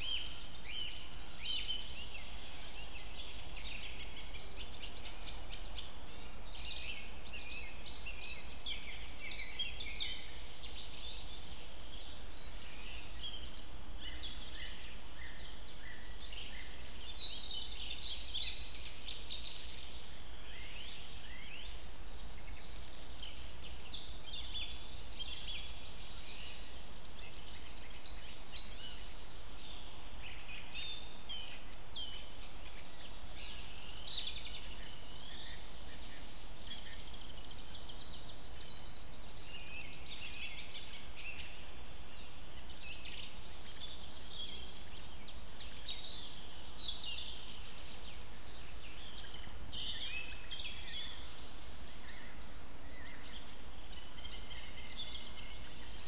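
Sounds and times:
low hiss: 0:00.0 - 0:56.0
small birds chirping: 0:00.0 - 0:56.0.

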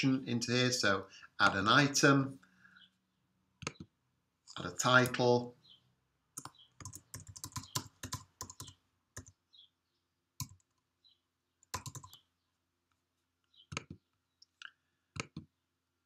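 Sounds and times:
typing on computer keyboard: 0:06.4 - 0:09.4, 0:10.4 - 0:10.8, 0:11.6 - 0:12.2.

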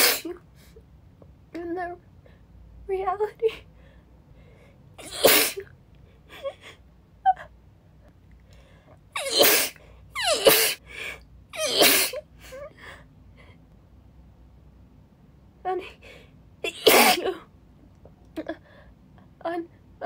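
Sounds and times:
woman sneezing: 0:00.0 - 0:00.4, 0:05.0 - 0:05.7, 0:09.2 - 0:10.8, 0:11.6 - 0:12.2, 0:16.7 - 0:17.4.

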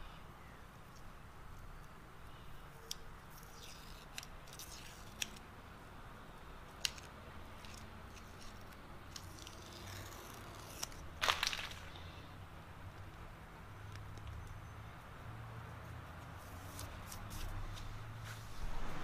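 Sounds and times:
low shop hum: 0:00.0 - 0:19.0
masking tape tearing: 0:02.9 - 0:05.4, 0:06.8 - 0:12.0.

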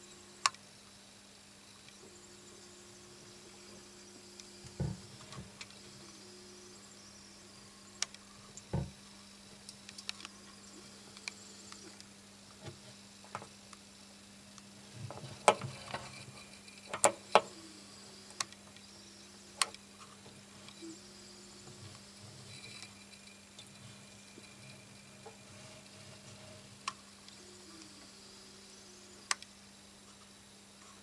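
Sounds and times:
steady low hum: 0:00.0 - 0:31.0
sharp clicks and knocks: 0:15.0 - 0:17.5.

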